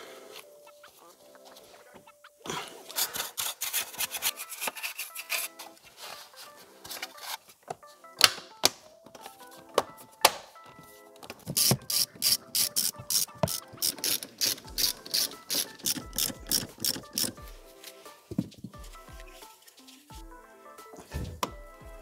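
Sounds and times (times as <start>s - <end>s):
ratchet wrench clicking: 11.6s - 17.4s.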